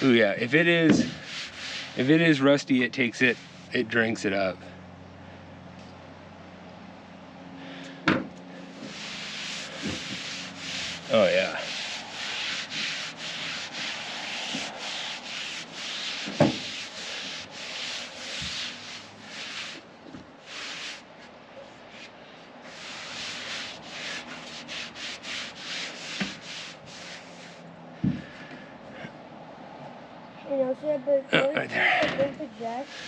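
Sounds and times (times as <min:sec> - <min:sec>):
cloth rubbing on metal: 0:00.0 - 0:04.0, 0:08.6 - 0:27.7, 0:32.4 - 0:33.0.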